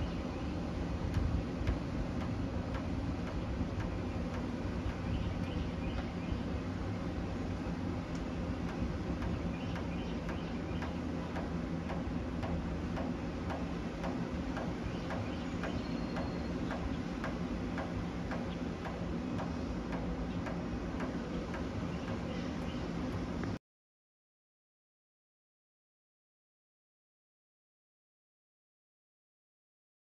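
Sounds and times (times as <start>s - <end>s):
distant jet airliner rumble: 0.0s - 23.6s
regular ticking: 0.3s - 23.4s.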